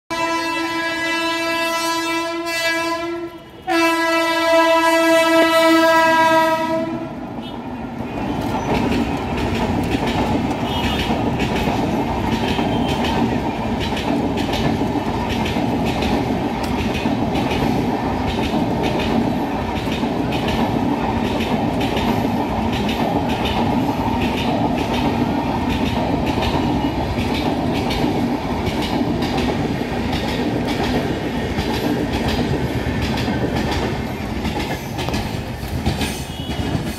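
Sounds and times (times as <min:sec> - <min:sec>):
electric locomotive horn blasts: 0:00.1 - 0:07.6, 0:10.6 - 0:11.1, 0:36.3 - 0:36.7
train rumbling past: 0:00.1 - 0:36.9
train wheels clacking over rail joints: 0:03.2 - 0:36.9.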